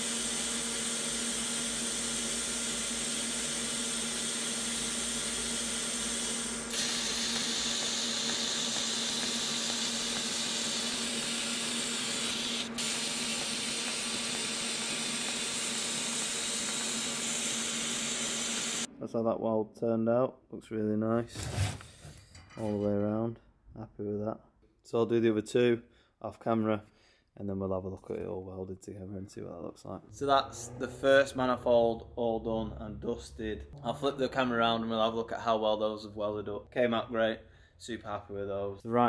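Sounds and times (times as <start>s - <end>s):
welding arc hissing: 0.0s - 18.9s.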